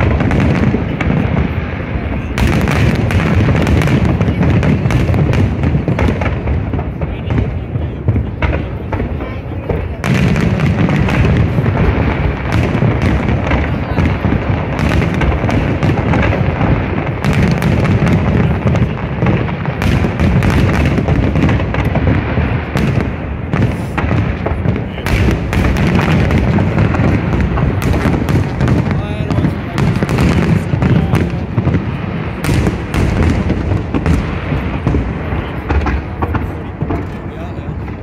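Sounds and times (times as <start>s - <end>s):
fireworks booming and crackling: 0.0s - 38.0s.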